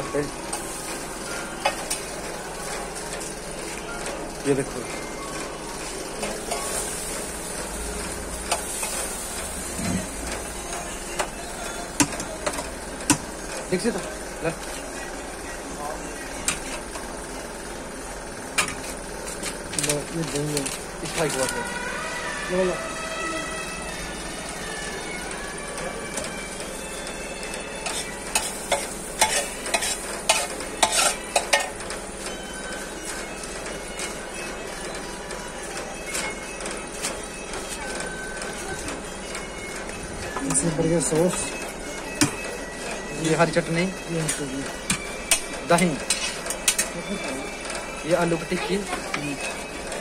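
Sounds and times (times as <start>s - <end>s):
food sizzling: 5.7s - 12.1s, 27.8s - 32.1s
metal utensil scraping griddle: 8.0s - 10.5s, 27.8s - 31.8s, 44.2s - 47.2s.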